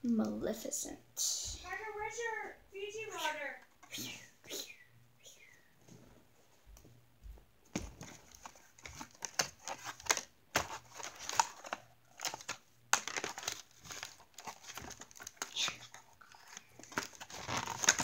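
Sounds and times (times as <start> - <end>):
plastic packaging crinkling: 7.9 - 18.0.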